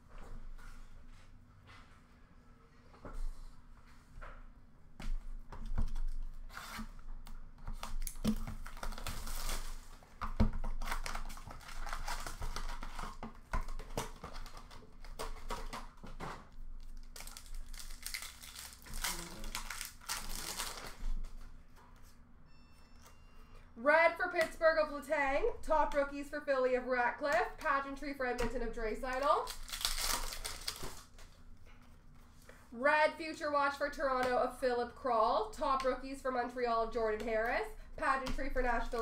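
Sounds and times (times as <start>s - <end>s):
foil wrappers crinkling and tearing: 7.7s - 21.4s, 29.1s - 31.3s.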